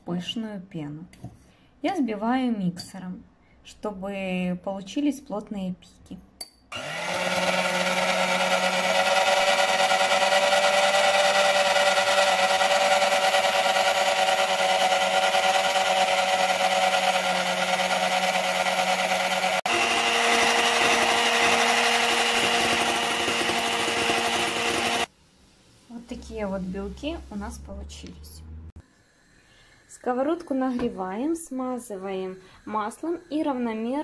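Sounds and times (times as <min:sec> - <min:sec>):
electric hand mixer whipping: 0:06.8 - 0:25.1.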